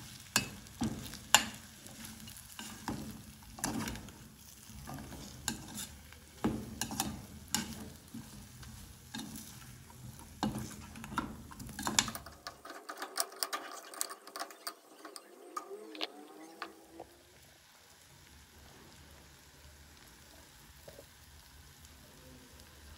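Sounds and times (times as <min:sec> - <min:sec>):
oil sizzling: 0:00.0 - 0:22.9
metal spoon scraping a pot: 0:01.3 - 0:16.0.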